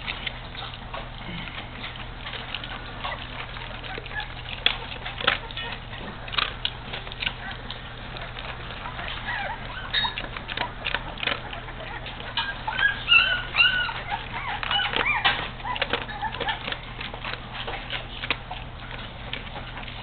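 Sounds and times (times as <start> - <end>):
puppies squeaking and whining: 0.0 - 20.0
wet smacking and lapping: 0.0 - 20.0.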